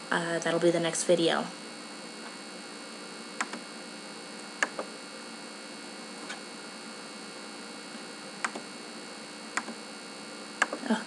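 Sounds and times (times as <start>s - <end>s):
microphone hiss and hum: 0.0s - 11.0s
computer mouse clicking: 3.4s - 3.6s, 4.6s - 4.9s, 8.4s - 8.6s, 9.6s - 9.8s.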